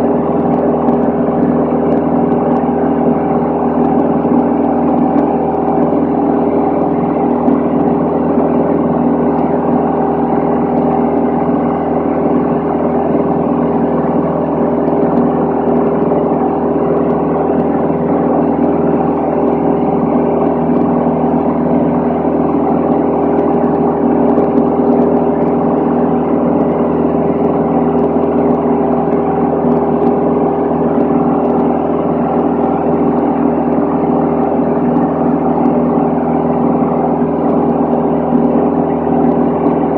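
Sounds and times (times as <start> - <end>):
air noise: 0.0 - 39.9
airplane engine and propeller drone: 0.0 - 39.9.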